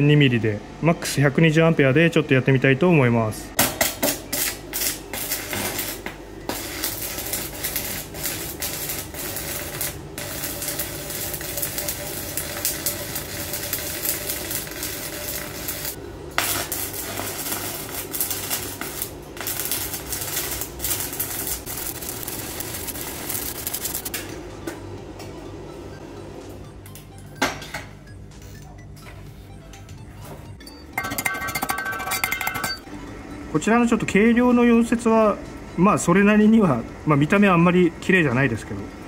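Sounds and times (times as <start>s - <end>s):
welding arc crackling: 3.7s - 24.2s.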